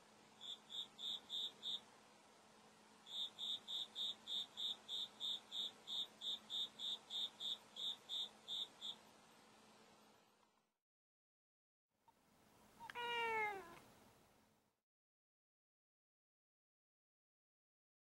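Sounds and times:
cricket chirping: 0.4 - 1.9, 3.0 - 9.1.

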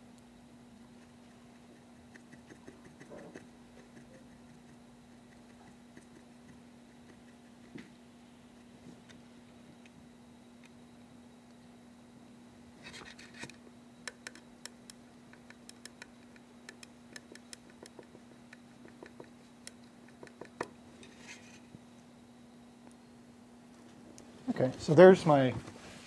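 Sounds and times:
paintbrush dabbing on plastic: 0.9 - 7.8.

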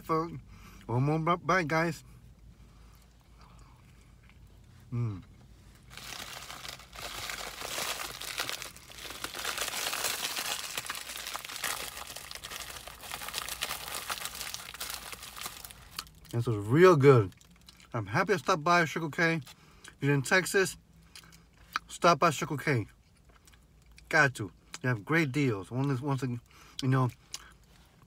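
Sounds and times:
paper wrapper being crumpled: 5.9 - 16.1.

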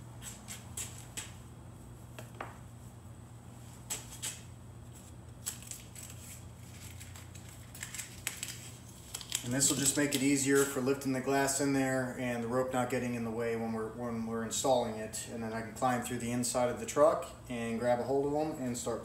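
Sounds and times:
steady low hum: 0.0 - 19.0
rope and tape rustling: 3.6 - 10.8.

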